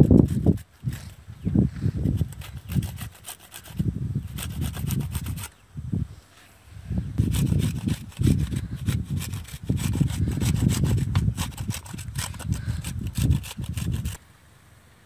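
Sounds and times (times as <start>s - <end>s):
fruit rasping on metal grater: 0.0s - 1.2s, 2.0s - 5.6s, 7.2s - 14.2s.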